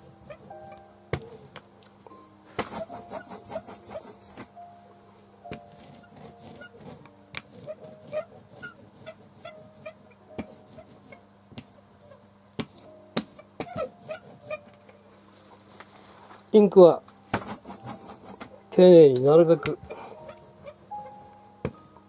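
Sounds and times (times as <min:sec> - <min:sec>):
hand rubbing on sheet: 0:02.6 - 0:04.5, 0:05.7 - 0:14.6, 0:17.4 - 0:18.5, 0:20.2 - 0:21.3
squeaks and creaks of desk: 0:05.7 - 0:10.1, 0:13.4 - 0:14.8, 0:20.2 - 0:21.1.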